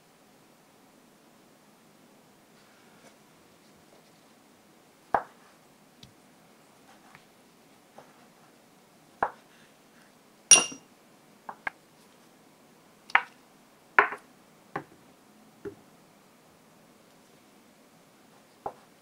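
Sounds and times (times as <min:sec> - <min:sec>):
glass bowl clinking on board: 0:10.5 - 0:10.8.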